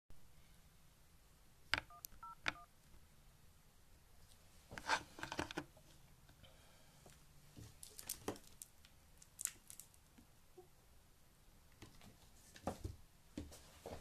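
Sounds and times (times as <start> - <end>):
phone keypad dialing tones: 1.8 - 2.7.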